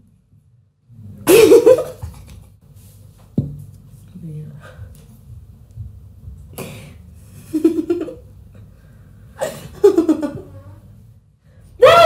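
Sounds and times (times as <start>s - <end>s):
girl giggling: 9.4s - 10.8s.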